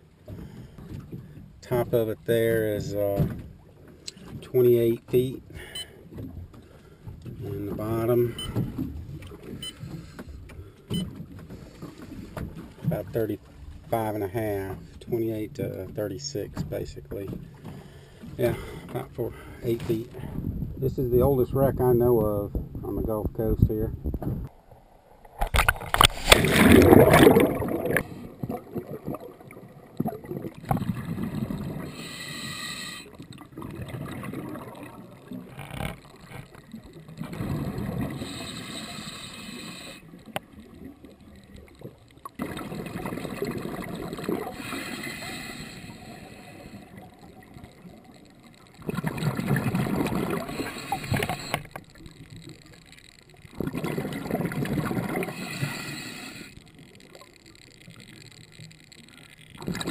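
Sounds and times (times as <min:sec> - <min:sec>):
bubbling: 0:25.2 - 0:59.9
diver splashing into water: 0:25.4 - 0:28.2
underwater regulator breathing: 0:31.8 - 0:33.2, 0:38.0 - 0:40.2, 0:44.4 - 0:47.1, 0:50.2 - 0:51.8, 0:55.0 - 0:56.8.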